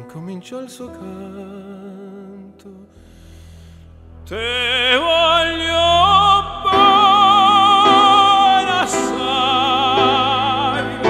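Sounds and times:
singer breathing in: 2.9s - 4.1s
operatic tenor singing: 4.3s - 11.0s
instrumental accompaniment: 6.7s - 11.0s.

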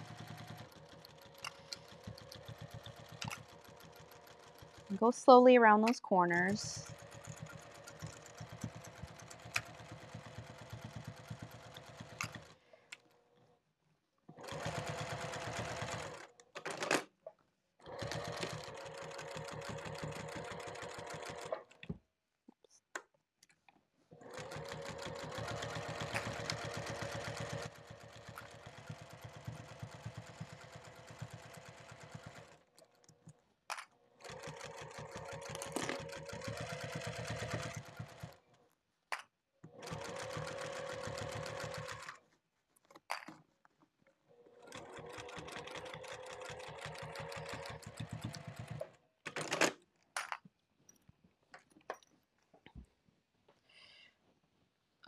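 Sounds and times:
sewing machine stitching: 0.0s - 5.2s, 5.8s - 12.6s, 14.4s - 17.0s, 17.8s - 21.8s, 24.2s - 33.0s, 34.2s - 38.6s, 39.7s - 42.2s, 44.4s - 49.7s.

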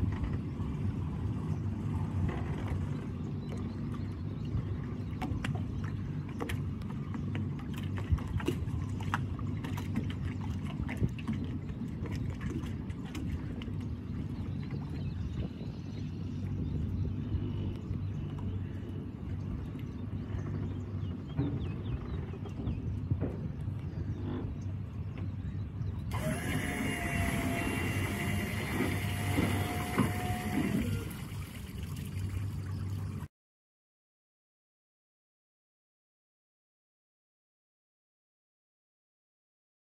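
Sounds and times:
outboard motors idling: 0.0s - 33.3s
motor whine: 26.0s - 31.8s.

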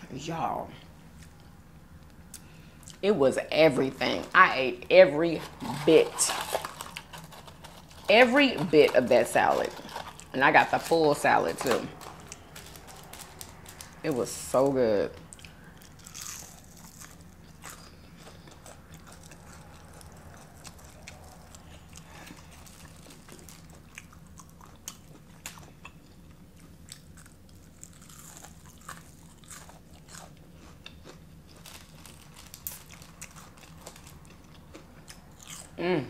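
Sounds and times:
faint low hum: 0.0s - 36.0s
person chewing crunchy food: 5.2s - 14.2s, 15.3s - 35.8s.

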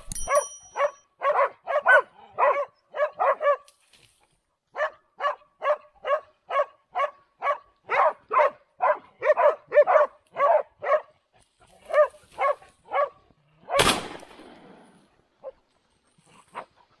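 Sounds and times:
hunting dog barking: 0.3s - 3.7s, 4.7s - 13.9s, 16.3s - 17.0s
loud gunshot with echo: 13.8s - 14.9s.

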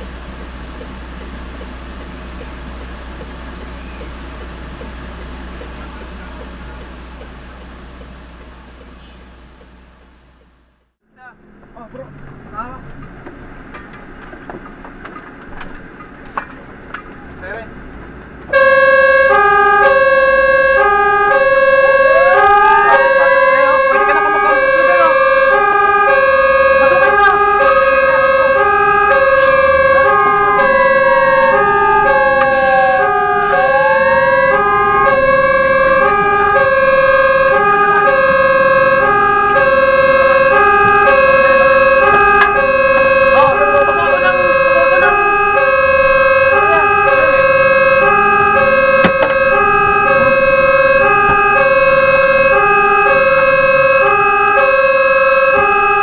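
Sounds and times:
two-tone fire truck siren: 18.4s - 56.0s
wailing siren: 18.4s - 56.0s.

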